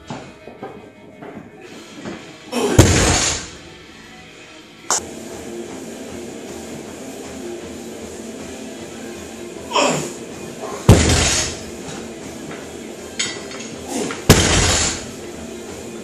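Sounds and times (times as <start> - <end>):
barbell banging on rubber platform: 10.9 - 11.6, 14.3 - 15.1.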